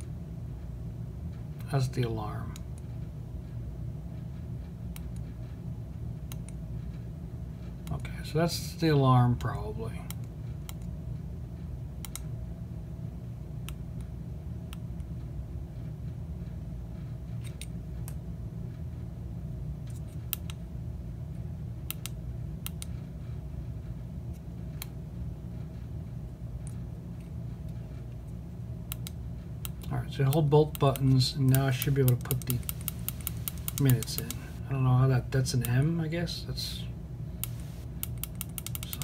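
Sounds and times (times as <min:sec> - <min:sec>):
steady low hum: 0:00.0 - 0:39.0
push buttons clicking: 0:29.7 - 0:34.6.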